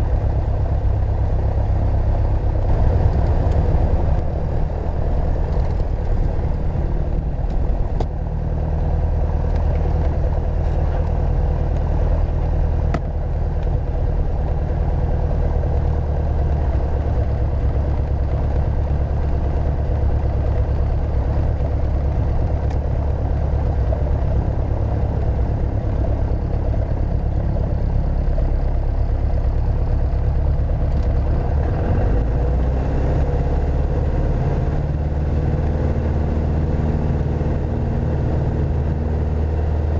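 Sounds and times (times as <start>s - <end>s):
aircraft engine running: 0.0s - 39.9s.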